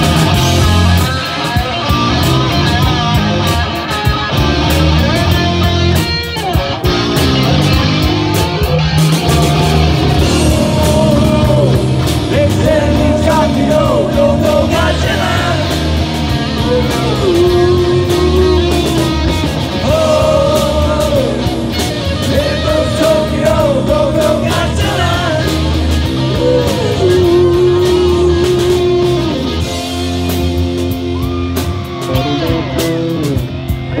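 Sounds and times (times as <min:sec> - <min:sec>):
bending lead guitar melody: 0:00.0 - 0:34.0
live rock band playing: 0:00.0 - 0:34.0.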